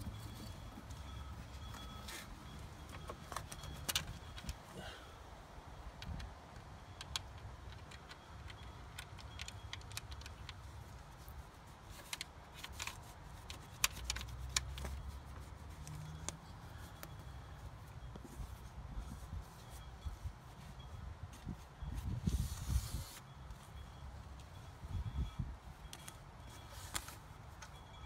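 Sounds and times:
small clicks and taps: 6.0s - 10.6s.

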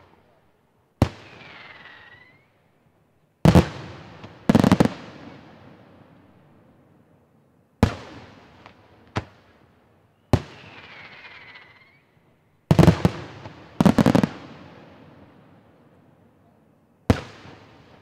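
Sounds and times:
falling firework whistle: 1.2s - 2.6s, 10.3s - 12.2s.

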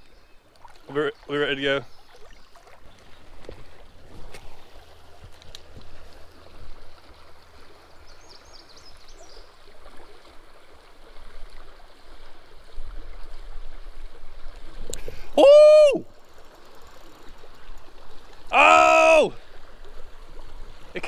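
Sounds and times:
creek water rushing over rocks: 0.0s - 21.0s.

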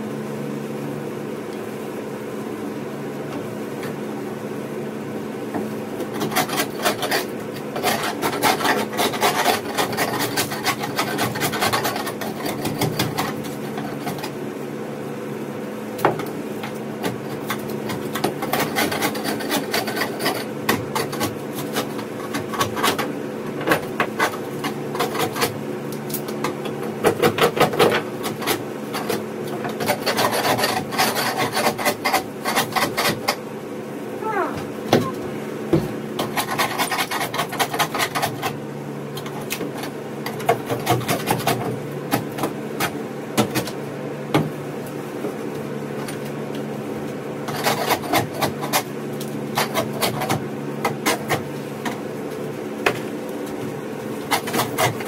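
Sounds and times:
steady background hum: 0.0s - 55.0s
scraper scraping boat hull: 6.0s - 14.4s, 17.0s - 25.6s, 26.8s - 33.4s, 36.2s - 38.6s, 39.3s - 43.0s, 47.4s - 51.6s, 54.0s - 55.0s.

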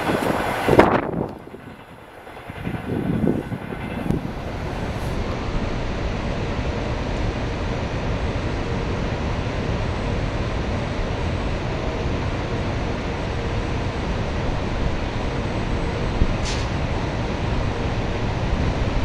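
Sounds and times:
electric locomotive blowers rushing: 0.0s - 5.9s
wind rumble on microphone: 0.0s - 19.0s.

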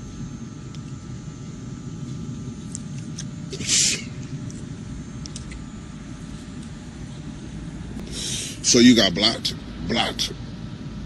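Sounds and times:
low background rumble: 0.0s - 11.0s
breathy exhale hiss: 3.5s - 4.2s, 8.0s - 8.7s.

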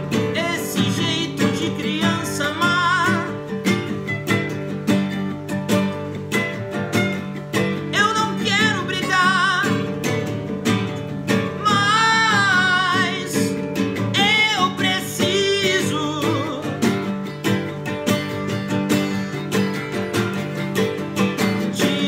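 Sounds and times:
man singing: 0.0s - 3.6s, 7.8s - 10.4s, 11.4s - 17.1s, 21.4s - 22.0s
acoustic guitars playing: 0.0s - 22.0s.

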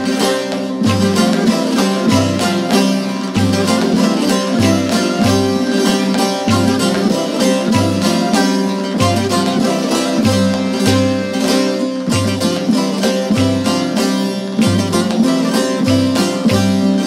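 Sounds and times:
plucked lute melody: 0.0s - 17.0s.

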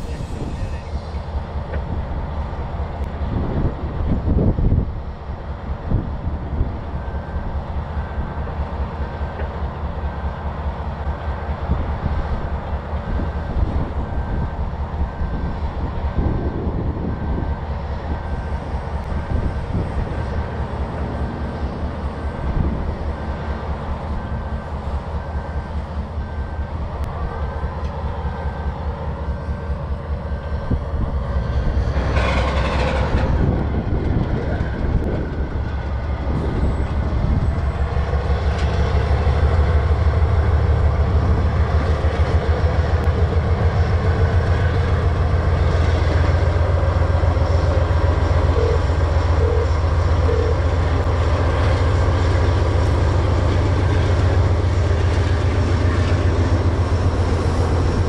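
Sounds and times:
freight cars rolling past: 18.2s - 58.0s.

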